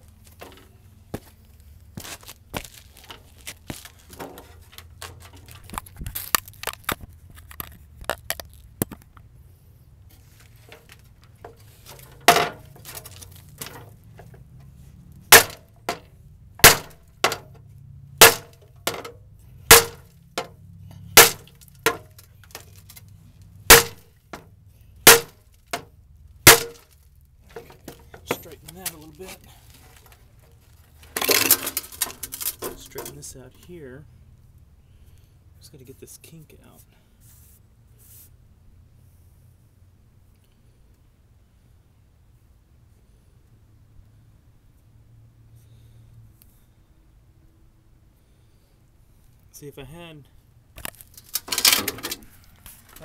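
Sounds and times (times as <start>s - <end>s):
hammer striking steel bumper: 12.2s - 14.4s, 15.3s - 17.6s, 18.2s - 22.2s, 23.7s - 24.5s, 25.1s - 25.9s, 26.5s - 26.9s
light metal clinks and knocks: 26.7s - 30.2s.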